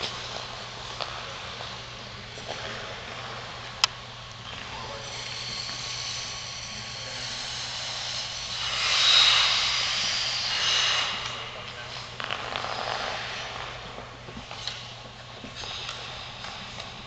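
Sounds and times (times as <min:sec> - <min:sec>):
skate blades scraping on ice: 0:07.2 - 0:16.9.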